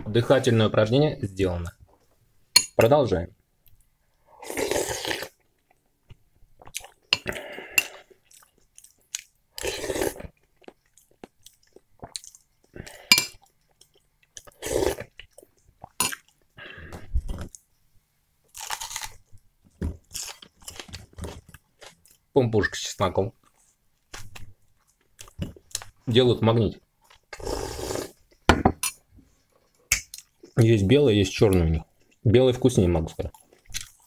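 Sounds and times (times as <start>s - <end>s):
person eating soup from a spoon: 6.6s - 13.6s.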